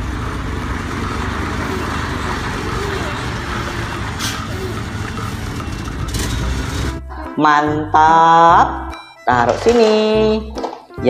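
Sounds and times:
truck diesel engine rumbling: 0:00.0 - 0:07.3.

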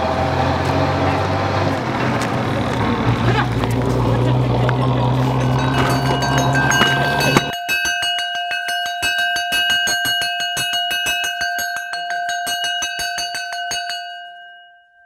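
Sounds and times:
metal bell struck rapidly: 0:04.0 - 0:14.6.

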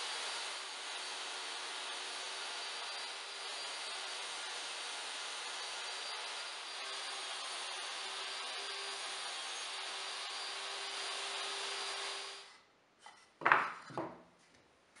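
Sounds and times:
table saw cutting plywood: 0:00.0 - 0:12.6
plywood knocking on workbench: 0:13.4 - 0:14.2.

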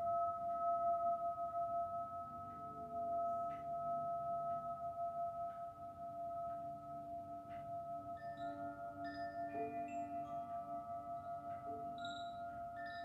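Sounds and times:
singing bowl ringing: 0:00.0 - 0:13.0.

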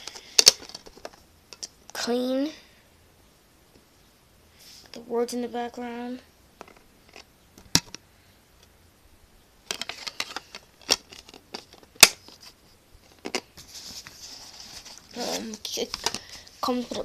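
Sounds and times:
soft rustling: 0:09.8 - 0:17.0.

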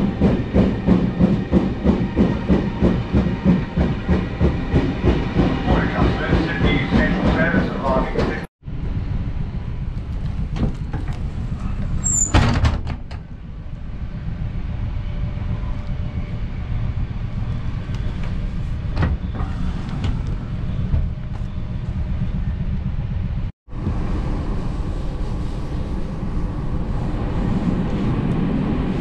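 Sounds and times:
train running rumble: 0:00.0 - 0:29.0
loud clunk and rattle: 0:10.5 - 0:13.3.

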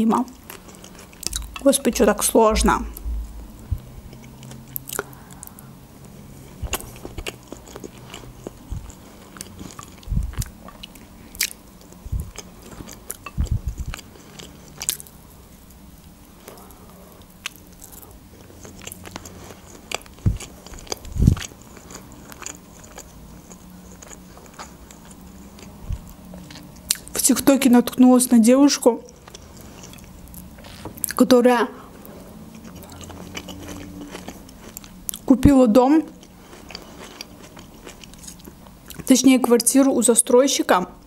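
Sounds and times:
biting and chewing food: 0:00.3 - 0:01.7, 0:03.0 - 0:15.3, 0:16.4 - 0:27.2, 0:32.0 - 0:35.4, 0:36.1 - 0:39.1.

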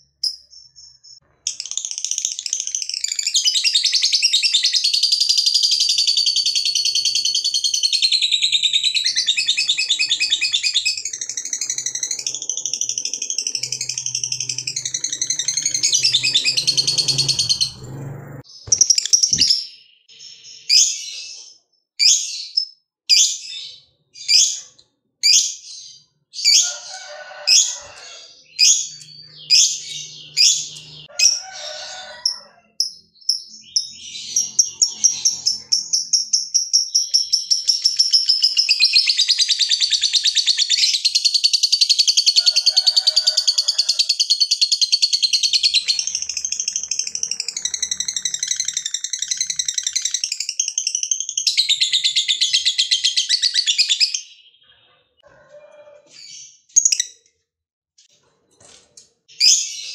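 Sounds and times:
bird chirping: 0:00.0 - 0:43.1, 0:43.9 - 0:55.4, 0:59.3 - 0:59.9
fast chattering bird trill: 0:01.5 - 0:18.0, 0:44.1 - 0:54.2.

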